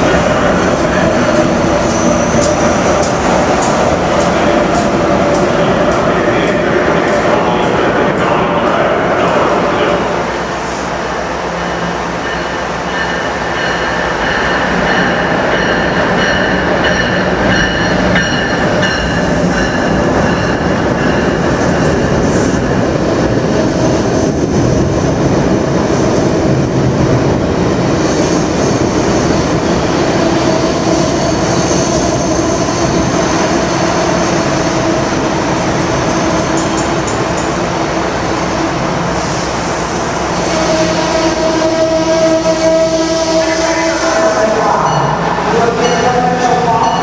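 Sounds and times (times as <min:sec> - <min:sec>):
train wheels rumbling on rails: 0:00.0 - 0:47.0.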